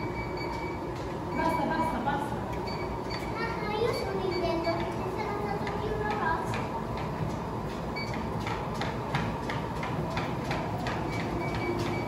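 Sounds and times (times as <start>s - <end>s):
footfalls on treadmill belts: 4.6s - 12.0s.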